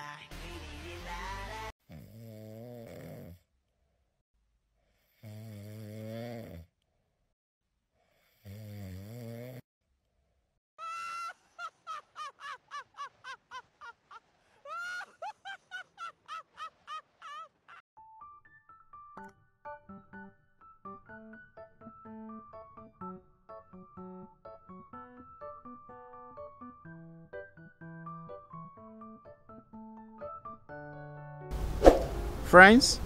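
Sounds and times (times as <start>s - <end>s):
deep snores: 1.8s - 3.5s, 4.9s - 6.8s, 8.0s - 9.6s.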